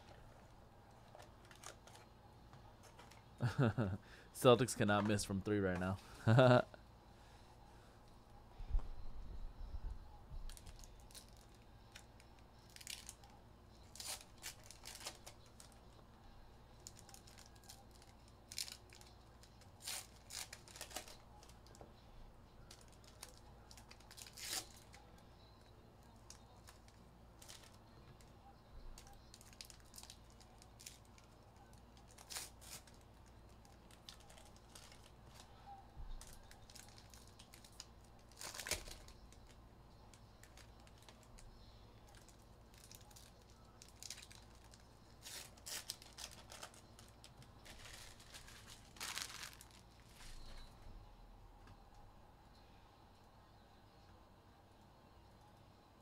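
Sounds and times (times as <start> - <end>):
plastic wrap tearing and crinkling: 12.7 - 15.8, 16.8 - 21.8, 22.7 - 25.0, 29.0 - 31.4, 32.0 - 35.4, 36.2 - 39.6, 42.1 - 50.4.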